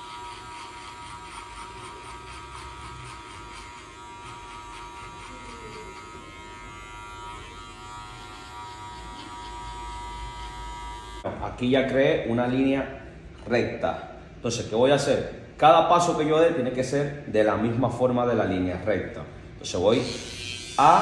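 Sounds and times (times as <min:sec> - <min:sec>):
electric hair clipper buzzing: 0:00.0 - 0:11.3, 0:19.9 - 0:21.0.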